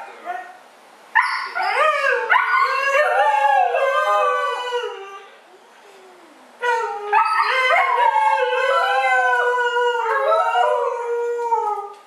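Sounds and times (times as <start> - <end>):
dogs howling: 1.4 - 5.2, 6.6 - 11.9.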